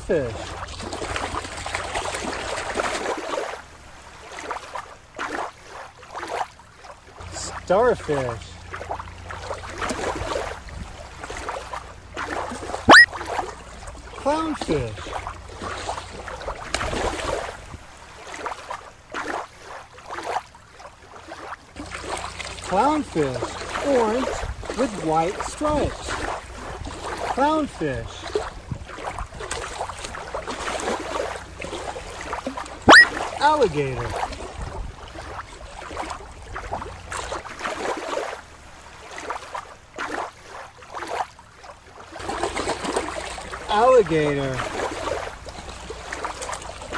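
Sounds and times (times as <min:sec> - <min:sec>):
small waves lapping: 0:00.0 - 0:46.9.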